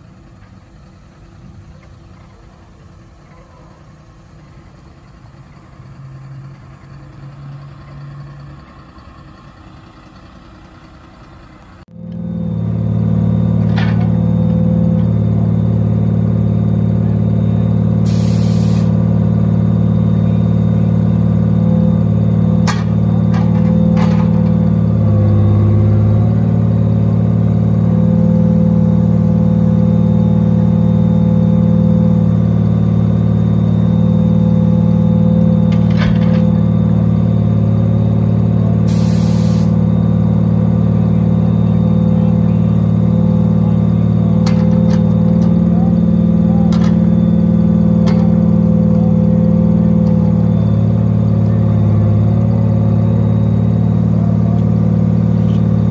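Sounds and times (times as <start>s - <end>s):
diesel truck engine running: 0.0s - 55.9s
brief hiss: 18.1s - 19.0s, 38.9s - 39.7s.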